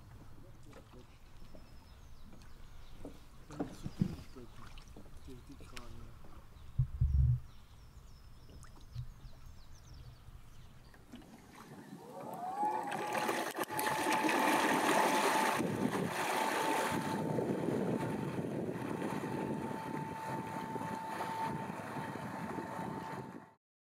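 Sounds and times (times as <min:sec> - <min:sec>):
faint water sounds: 0:00.0 - 0:23.2
boat wake rushing and splashing: 0:10.9 - 0:23.5
electric outboard motor whine: 0:11.8 - 0:23.6.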